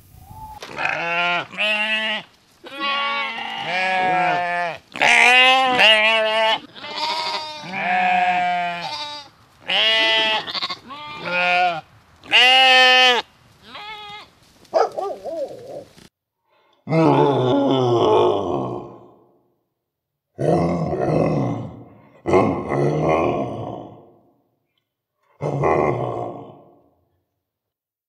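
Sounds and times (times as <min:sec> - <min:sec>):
sheep bleating: 0:00.6 - 0:14.3.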